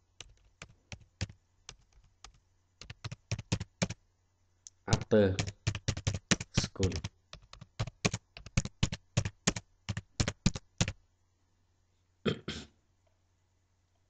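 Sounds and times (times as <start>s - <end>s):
keyboard typing: 0.2s - 4.0s, 4.9s - 11.0s.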